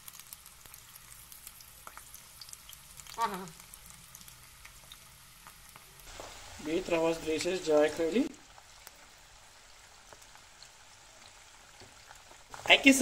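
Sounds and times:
deep-frying in hot oil: 0.0s - 13.0s
person speaking: 12.7s - 13.0s.

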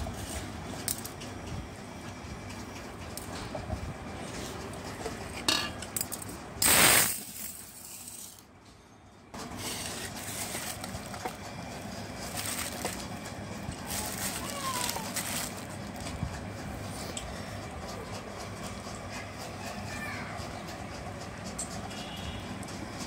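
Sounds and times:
rice rattling in a bowl: 12.1s - 16.0s.

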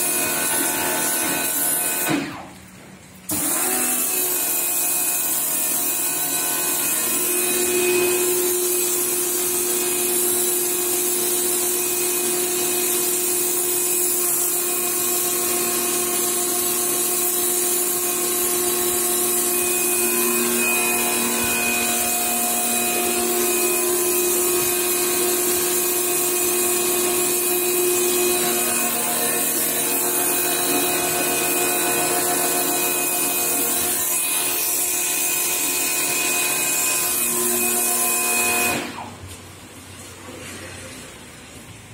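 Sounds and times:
pressure washer pump humming: 0.0s - 2.6s, 3.2s - 39.4s.

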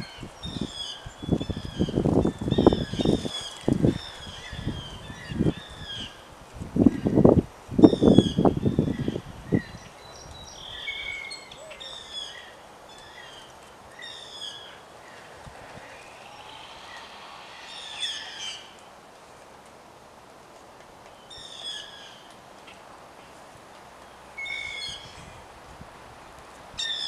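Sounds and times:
birds calling: 7.9s - 18.9s.

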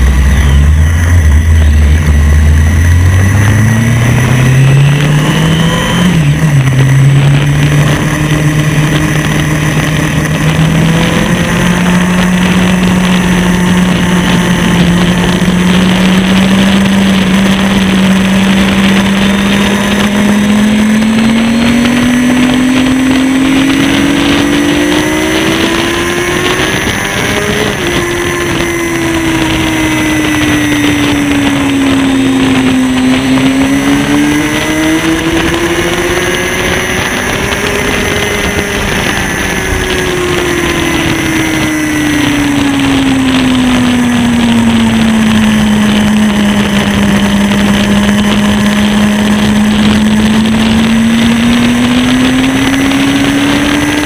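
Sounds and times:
motorcycle engine at speed: 0.0s - 54.0s
wind noise: 0.0s - 54.0s.

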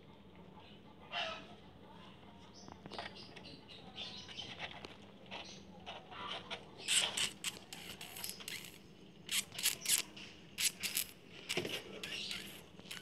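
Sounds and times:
kittens scratching in wire cage: 4.4s - 13.0s.

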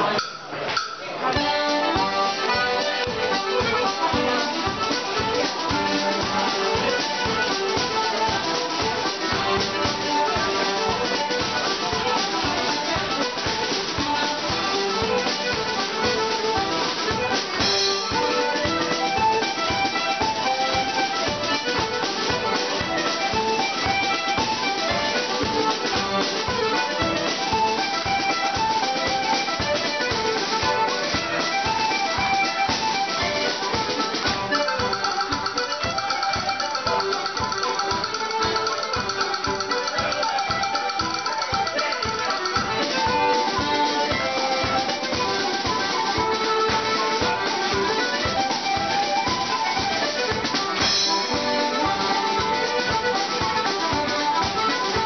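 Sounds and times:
accordion: 0.0s - 55.0s
drum beat: 0.0s - 55.0s
fiddle: 0.0s - 55.0s
flute and tin whistle: 26.0s - 55.0s.

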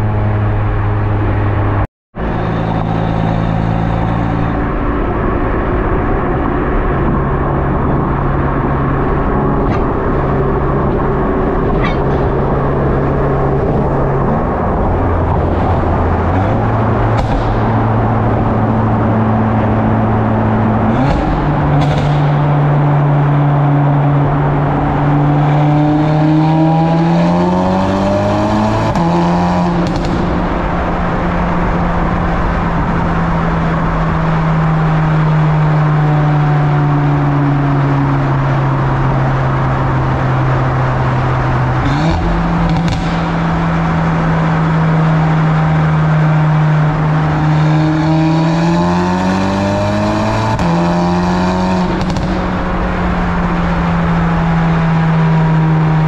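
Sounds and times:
car exhaust echoing in tunnel: 0.0s - 56.0s.

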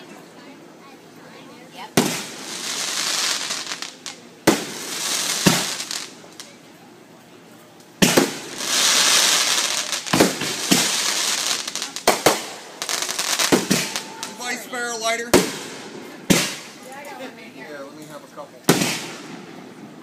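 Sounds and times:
fireworks hissing: 1.8s - 6.6s, 7.9s - 17.1s, 18.7s - 20.0s
fireworks bangs: 1.9s - 6.6s, 8.0s - 16.9s, 18.6s - 20.0s.

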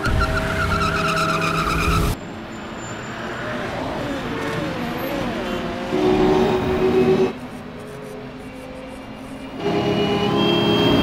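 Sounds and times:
car tyres squealing: 0.0s - 3.5s.

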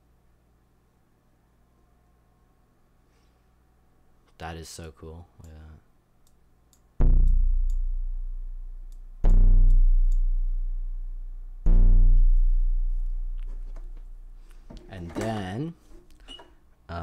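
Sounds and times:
low plucked string notes: 7.0s - 14.3s.

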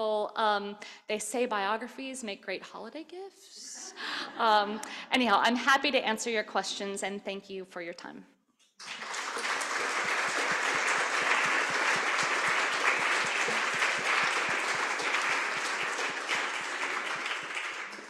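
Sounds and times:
audience applauding: 8.8s - 18.0s.

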